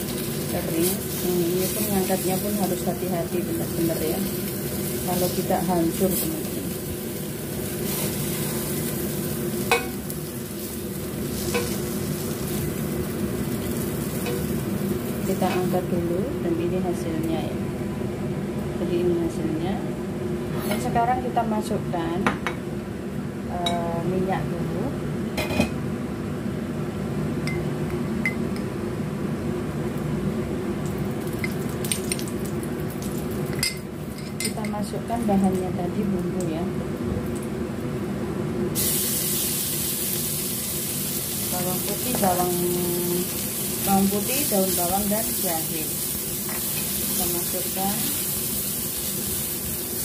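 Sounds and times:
oil sizzling in pan: 0.0s - 16.1s, 30.8s - 34.2s, 38.7s - 50.0s
steady low hum: 0.0s - 48.7s.

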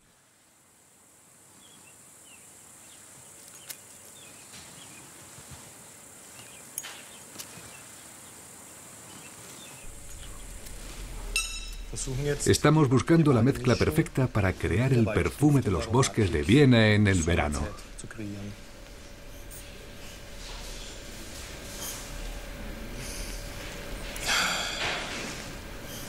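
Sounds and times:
high insect hum: 0.0s - 26.0s
bird chirps: 9.1s - 12.0s.

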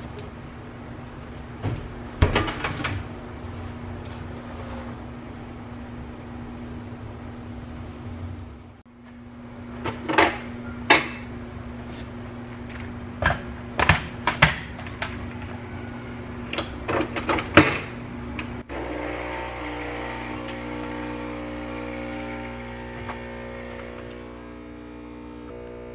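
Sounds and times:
steady machine hum with tones: 3.1s - 25.9s.

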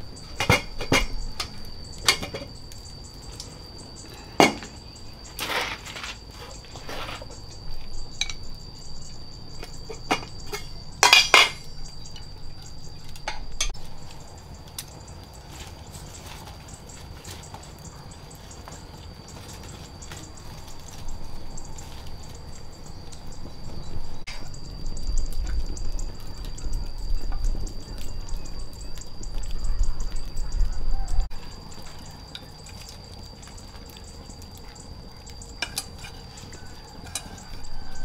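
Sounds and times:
pots and dishes clinking: 0.3s - 2.6s, 4.4s - 4.8s, 9.6s - 13.8s, 35.5s - 38.0s.

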